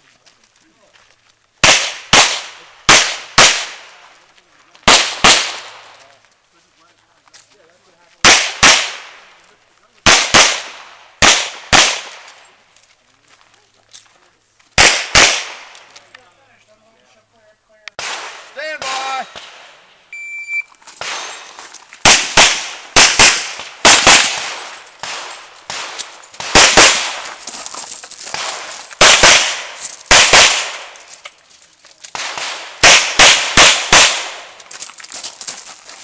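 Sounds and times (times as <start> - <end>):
revolver gunshots: 1.6 - 4.0, 4.9 - 5.9, 8.2 - 9.2, 10.0 - 12.3, 14.8 - 15.8, 18.0 - 19.8, 21.0 - 27.3, 28.3 - 31.0, 32.1 - 34.5
shot-timer beep: 20.1 - 20.7.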